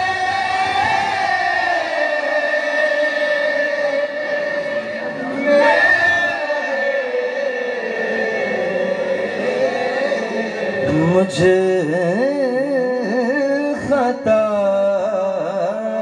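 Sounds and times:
men chanting together: 0.0s - 11.6s.

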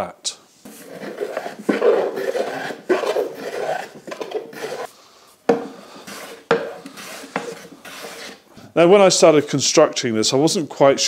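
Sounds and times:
hand plane shaving wood: 0.7s - 4.9s, 5.5s - 8.4s.

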